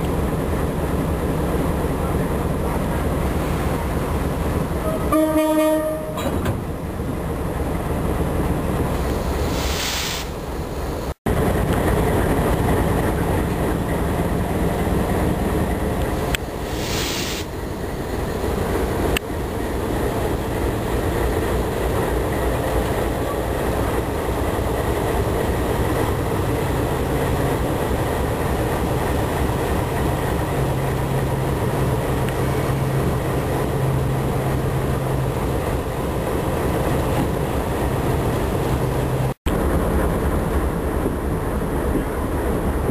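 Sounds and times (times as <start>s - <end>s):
diesel locomotive running: 0.0s - 42.9s
air hissing: 9.1s - 10.5s, 16.6s - 17.6s.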